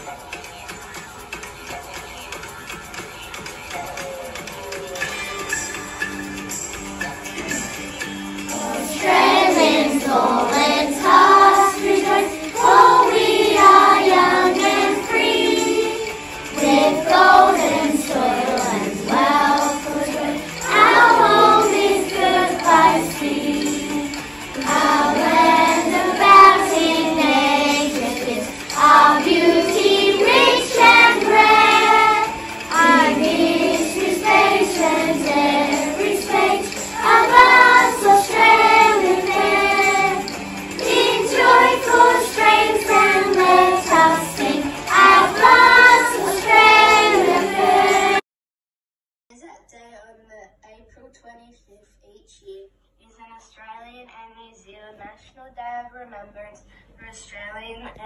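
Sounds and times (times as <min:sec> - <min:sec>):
children singing together: 0:08.5 - 0:48.2.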